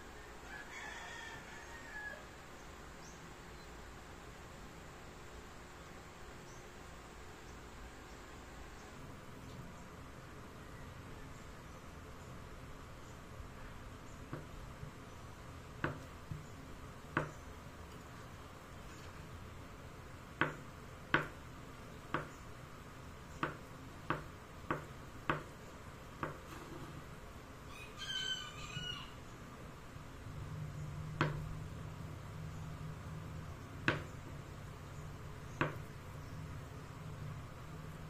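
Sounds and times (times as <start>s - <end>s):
rooster crowing: 0.0s - 2.4s, 27.7s - 29.3s.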